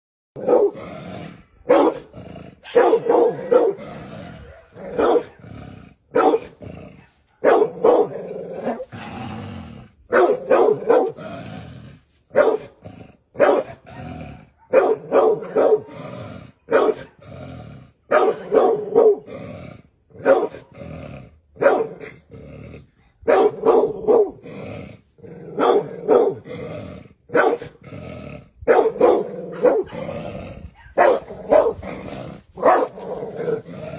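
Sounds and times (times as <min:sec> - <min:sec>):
dog barking: 0:00.4 - 0:00.8, 0:01.7 - 0:03.8, 0:04.4 - 0:05.4, 0:06.1 - 0:06.6, 0:07.3 - 0:08.9, 0:10.1 - 0:11.2, 0:12.3 - 0:12.8, 0:13.4 - 0:15.9, 0:16.7 - 0:17.2, 0:18.1 - 0:19.3, 0:20.2 - 0:20.6, 0:21.6 - 0:22.2, 0:23.3 - 0:24.4, 0:25.5 - 0:26.4, 0:27.3 - 0:27.8, 0:28.7 - 0:30.1, 0:30.8 - 0:31.8, 0:32.6 - 0:33.7.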